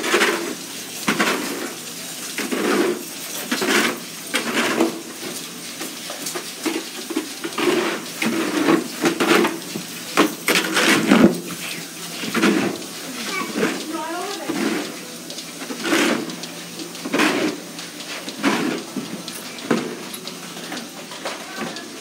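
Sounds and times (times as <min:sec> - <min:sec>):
barn scraper scraping concrete floor: 0:00.0 - 0:01.7, 0:02.3 - 0:05.0, 0:07.0 - 0:16.4, 0:17.0 - 0:20.0.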